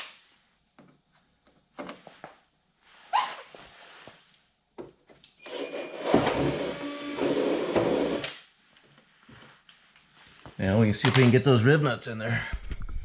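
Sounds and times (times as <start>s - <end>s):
cordless drill whirring: 5.5s - 8.3s.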